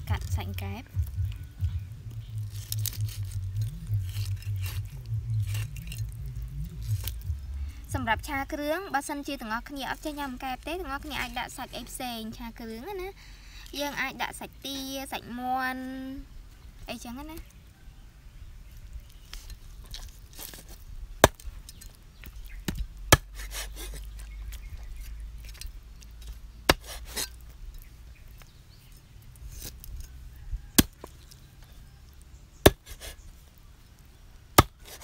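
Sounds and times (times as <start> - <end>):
cleaver chopping on wooden board: 20.4 - 21.4, 22.6 - 24.0, 26.7 - 27.4, 30.8 - 31.1, 32.6 - 33.2, 34.6 - 35.0.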